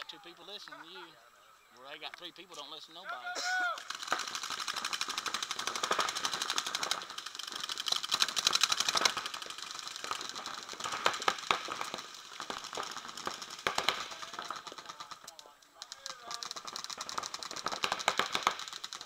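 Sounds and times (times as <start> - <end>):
paintball markers firing rapidly: 3.8 - 19.0.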